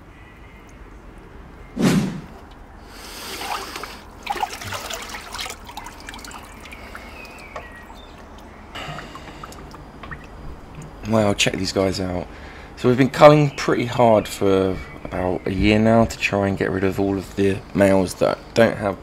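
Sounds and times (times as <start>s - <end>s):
loud thump: 1.8s - 2.4s
water splashing and sloshing: 1.8s - 11.1s
water trickling and dripping: 2.5s - 11.2s, 15.6s - 17.8s.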